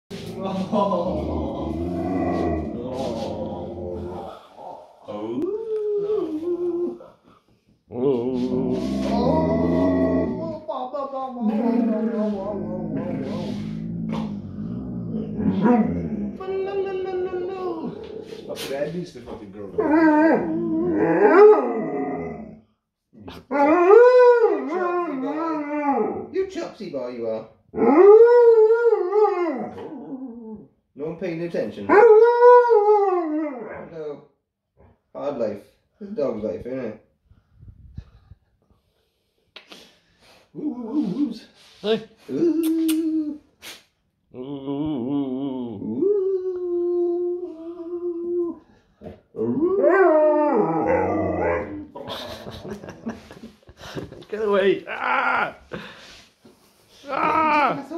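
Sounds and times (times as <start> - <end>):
dog howling: 0.7 - 7.0, 8.0 - 10.6, 11.4 - 18.4, 19.8 - 22.6, 23.5 - 26.3, 27.8 - 30.7, 31.9 - 34.0, 49.4 - 51.9.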